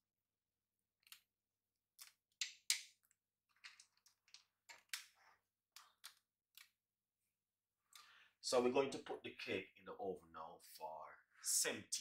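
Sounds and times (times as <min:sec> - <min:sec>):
chocolate chips clicking: 0:02.0 - 0:05.1.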